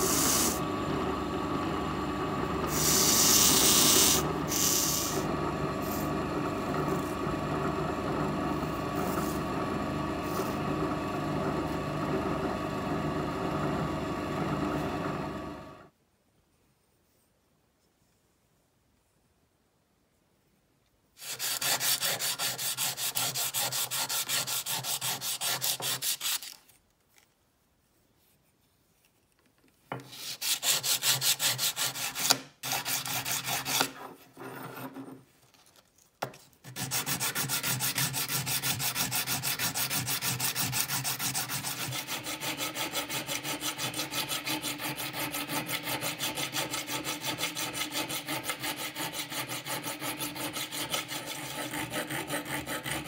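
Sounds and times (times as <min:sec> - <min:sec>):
sandpaper rubbing on metal: 0:02.7 - 0:05.2, 0:21.2 - 0:26.6, 0:30.1 - 0:33.8, 0:36.7 - 0:53.0.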